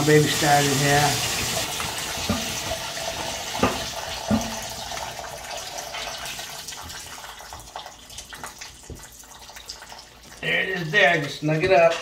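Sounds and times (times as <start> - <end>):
water hissing: 0.0 - 4.8.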